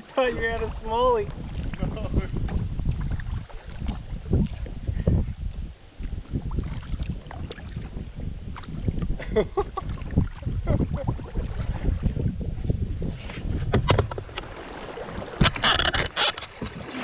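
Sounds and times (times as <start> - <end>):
water lapping against kayak hull: 0.0 - 17.0
wind rumbling on microphone: 0.0 - 17.0
knocks and clicks: 13.7 - 14.5.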